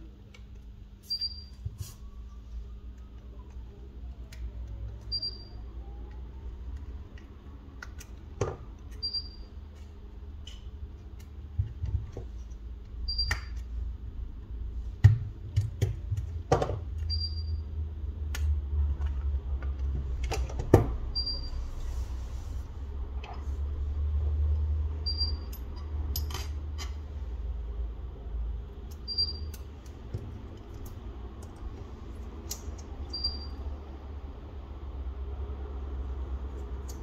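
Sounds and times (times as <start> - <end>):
faint high beep: 5.1 - 5.6, 21.2 - 21.6
tools clicking and tapping: 25.1 - 27.0.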